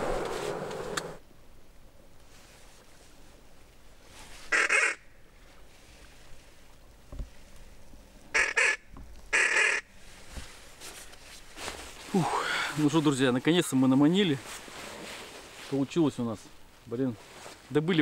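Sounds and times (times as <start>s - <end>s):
duck call honking: 4.5s - 5.0s, 8.3s - 9.8s.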